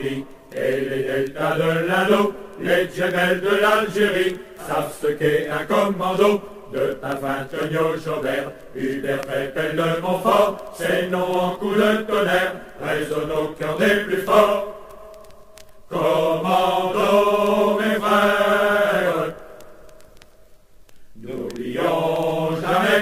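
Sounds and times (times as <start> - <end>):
voices chanting: 0.0 - 15.2, 15.9 - 19.8, 21.2 - 23.0.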